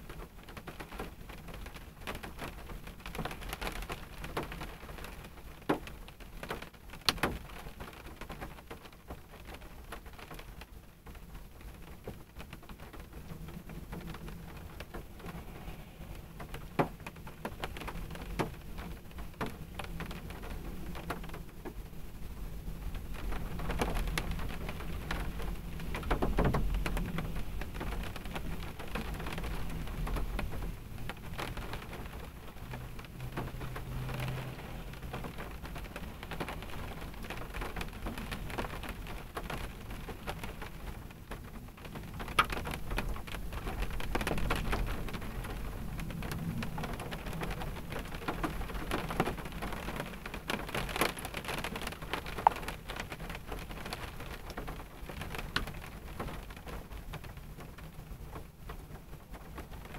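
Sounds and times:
rain pattering on a car: 0.0 - 59.9
low rumble: 14.2 - 16.8.

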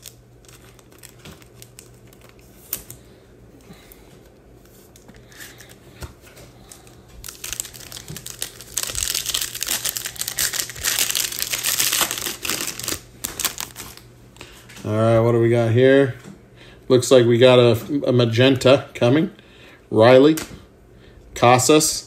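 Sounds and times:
foil wrapper crinkling: 0.0 - 3.2, 6.6 - 14.6.

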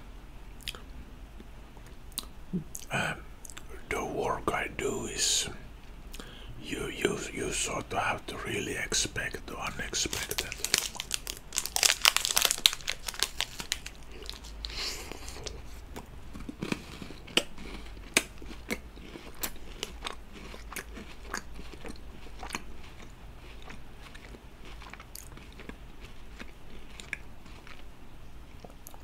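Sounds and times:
chewing with crunches: 9.2 - 29.0.

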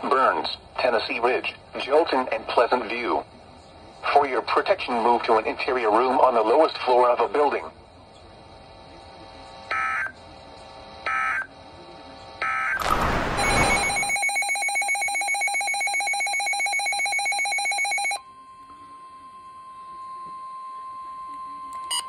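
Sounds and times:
burst of static: 12.8 - 14.2
warbling data bursts: 12.8 - 15.1
rapidly pulsing alert tone: 12.8 - 16.4
steady attention tone: 12.8 - 20.8.

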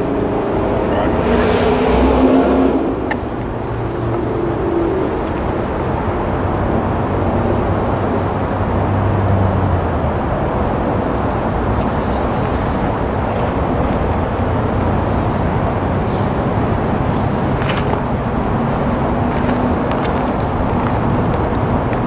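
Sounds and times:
distant engine droning: 0.0 - 22.0
outdoor rushing noise: 0.0 - 22.0.

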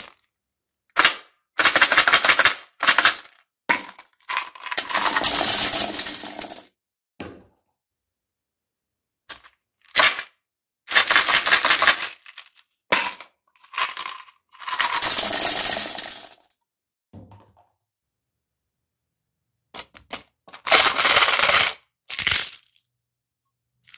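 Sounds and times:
candy pellets clattering on ceramic: 1.6 - 6.7, 10.9 - 16.5, 20.6 - 22.8.

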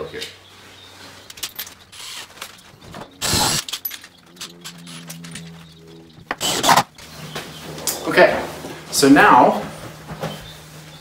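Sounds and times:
cordless drill driving screw: 2.0 - 2.3, 3.2 - 3.7, 6.4 - 6.9.

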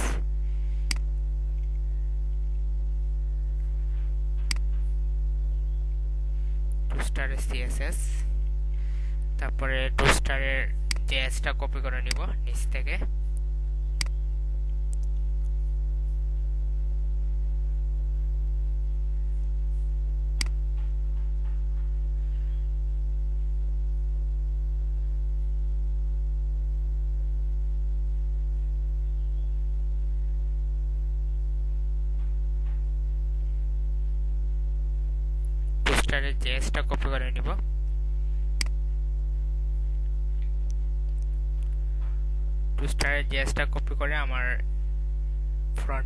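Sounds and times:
electrical hum: 0.0 - 46.0
sharp click: 0.9 - 1.7, 4.4 - 4.8, 10.9 - 11.2, 12.0 - 12.3, 14.0 - 14.2.

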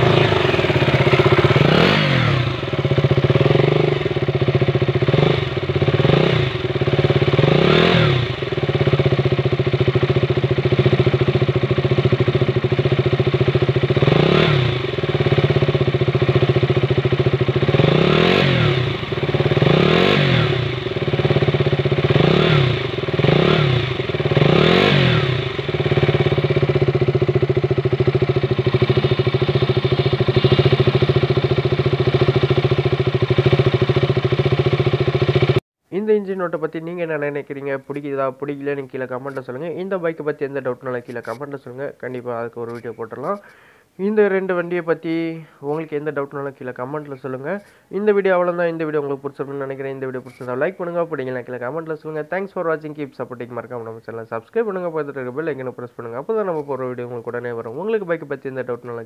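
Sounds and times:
engine throttle blips: 0.0 - 8.9, 42.6 - 43.7
motorcycle engine idling: 0.0 - 35.6, 37.9 - 43.9.

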